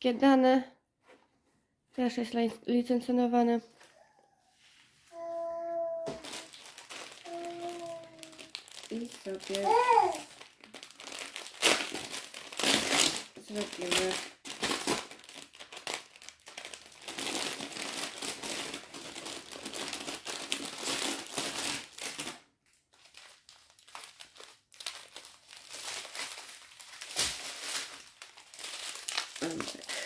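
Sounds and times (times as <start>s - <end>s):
plastic packaging crinkling: 6.1s - 30.0s.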